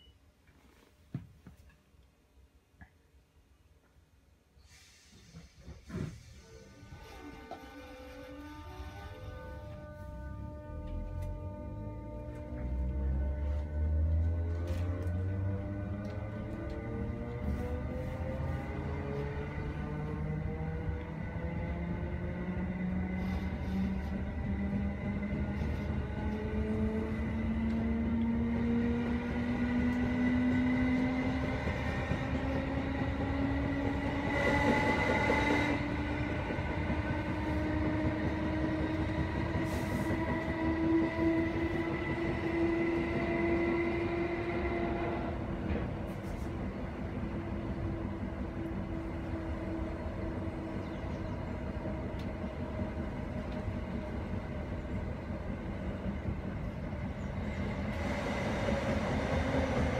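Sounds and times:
train wheels rumbling on track: 4.6s - 59.9s
electric train motors whining: 6.1s - 59.9s.

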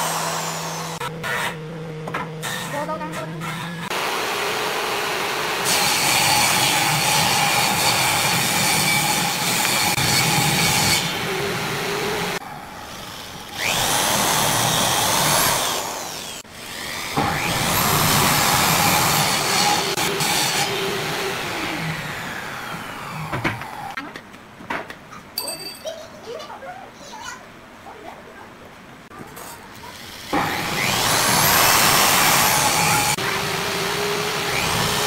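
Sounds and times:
electric drill boring into wood: 0.0s - 1.4s, 13.4s - 24.0s, 30.1s - 35.0s.

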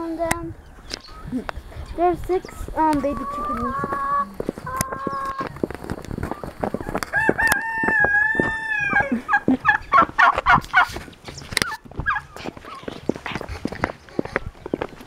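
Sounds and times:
turkeys gobbling: 2.6s - 11.0s, 11.6s - 14.9s
rooster crowing: 7.1s - 9.1s.

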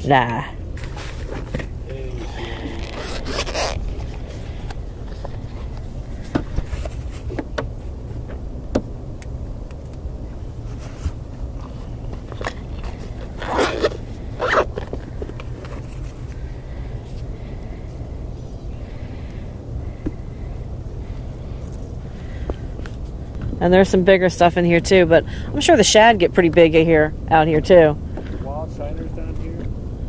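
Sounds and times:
steady low rumble: 0.0s - 30.0s
gear rustling and scraping: 0.7s - 8.3s, 10.6s - 17.6s.

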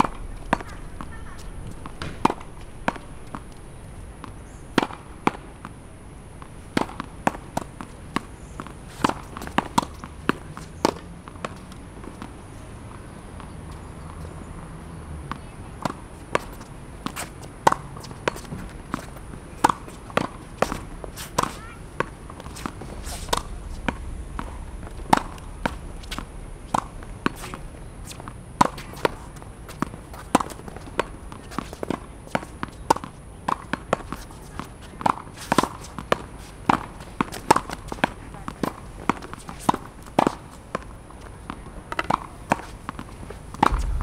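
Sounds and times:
tennis ball hitting racket and wall: 0.0s - 5.8s, 6.4s - 12.3s, 15.3s - 44.0s.

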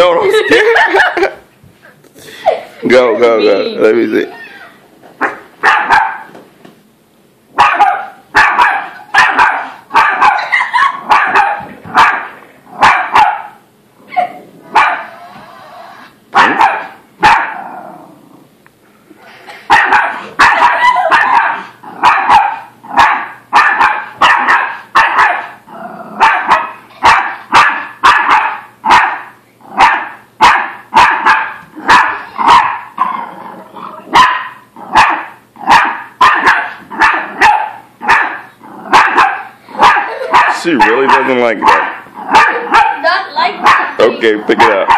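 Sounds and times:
small dog barking: 5.2s - 6.3s, 7.6s - 15.1s, 16.4s - 17.6s, 19.7s - 25.6s, 26.2s - 33.1s, 34.1s - 44.9s.

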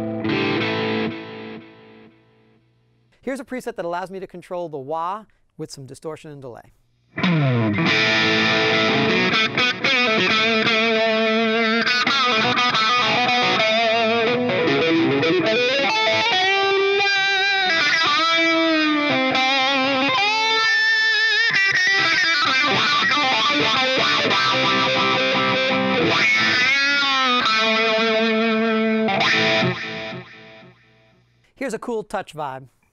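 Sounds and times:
distorted electric guitar with wah: 0.0s - 2.2s, 7.1s - 31.1s.

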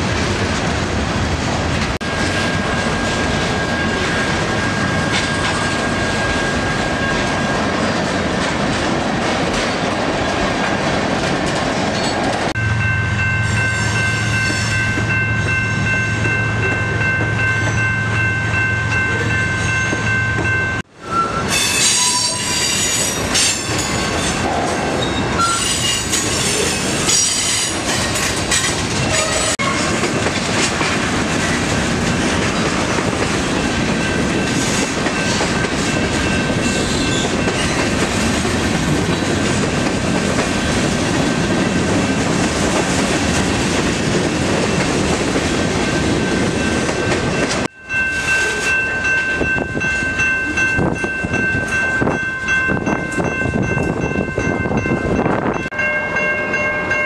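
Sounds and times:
freight train wheels rumbling: 0.0s - 57.0s
high wheel squeal: 21.0s - 27.8s.

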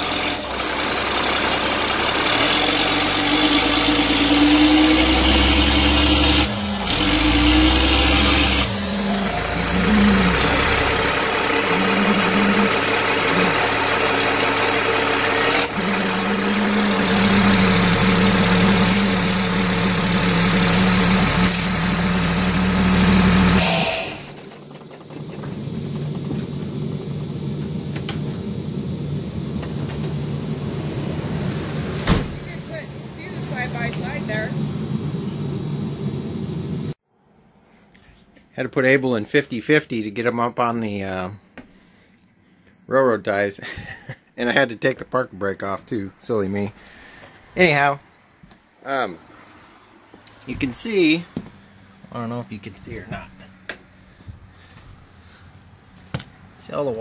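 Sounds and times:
diesel truck engine under load: 0.0s - 37.0s, 49.2s - 57.0s.

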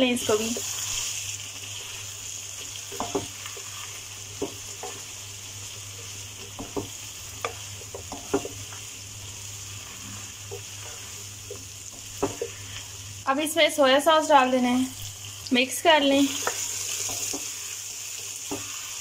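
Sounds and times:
frying sizzle: 0.0s - 19.0s
spoon scraping and knocking pan: 2.6s - 9.0s, 9.8s - 12.9s, 16.3s - 19.0s.

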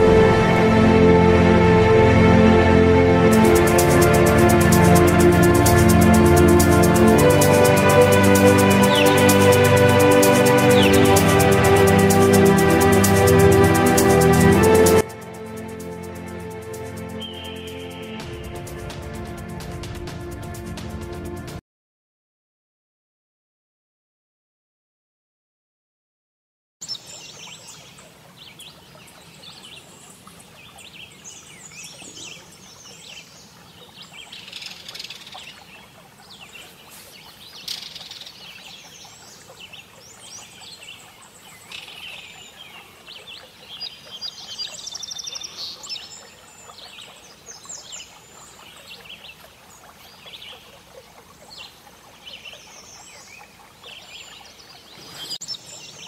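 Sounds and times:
faint outdoor background: 0.0s - 21.6s
songbirds chirping: 3.4s - 18.9s, 26.8s - 56.0s
bird trill: 17.2s - 18.2s.

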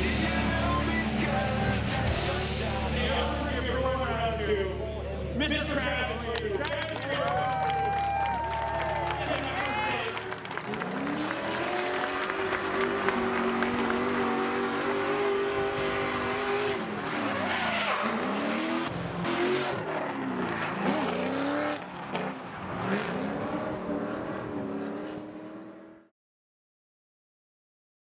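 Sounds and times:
car engine at high revs: 10.5s - 26.1s.

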